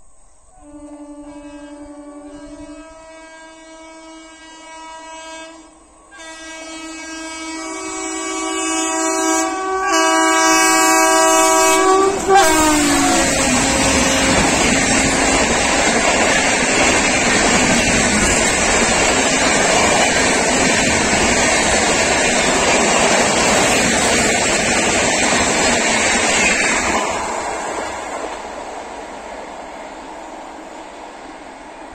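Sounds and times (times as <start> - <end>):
locomotive multi-tone horn: 0.5 - 17.0
train coaches rolling over rails: 7.5 - 31.9.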